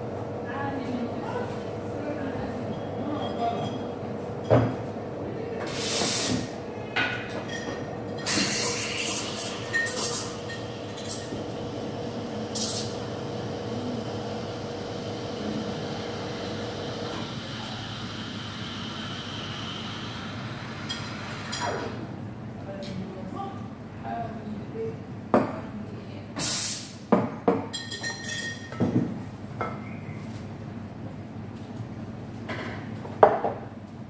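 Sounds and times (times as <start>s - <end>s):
sharp steam blasts: 26.4s - 27.0s.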